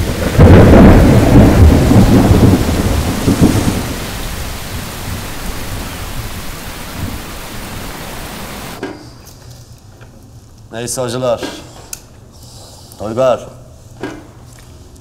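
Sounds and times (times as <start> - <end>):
surf crashing on shore: 0.0 - 8.8.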